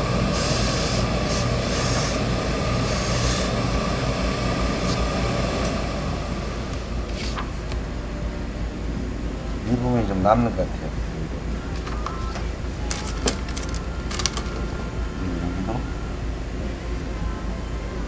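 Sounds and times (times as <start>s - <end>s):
steam iron hissing: 0.0s - 5.2s
hum with thin whine: 0.0s - 18.0s.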